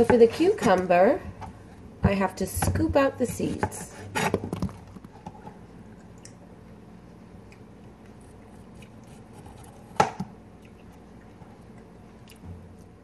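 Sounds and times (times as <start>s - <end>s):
knife cutting cucumber: 8.5s - 10.3s.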